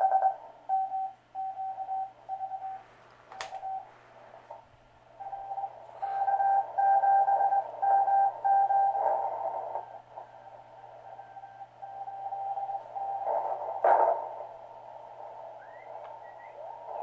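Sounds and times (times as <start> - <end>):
morse code tone: 5.2 - 13.6
radio hiss: 8.9 - 11.7, 12.6 - 17.0
sharp radio crackle: 12.8 - 17.0.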